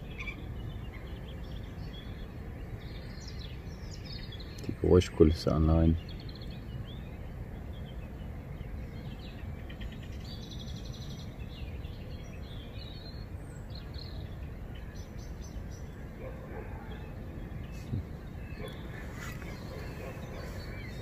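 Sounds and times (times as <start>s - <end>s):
birds chirping: 0.0s - 21.0s
bird trill: 13.8s - 21.0s.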